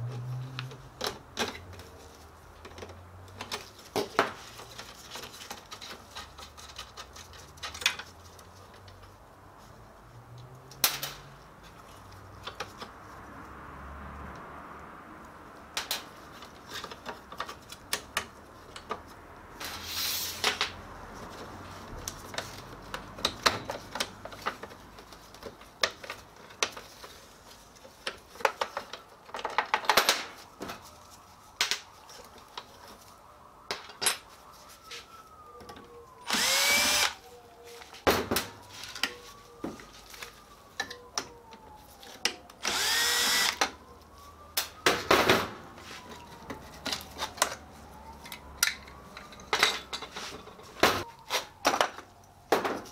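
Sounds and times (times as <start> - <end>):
plastic and metal parts clattering: 0.6 - 8.5, 22.2 - 30.8, 48.2 - 52.9
cordless drill running: 36.3 - 37.2, 42.6 - 43.6.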